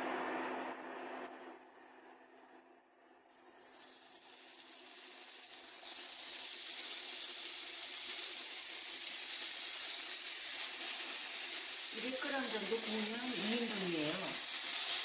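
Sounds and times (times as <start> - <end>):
pork sizzling in a frying pan: 3.6 - 15.0.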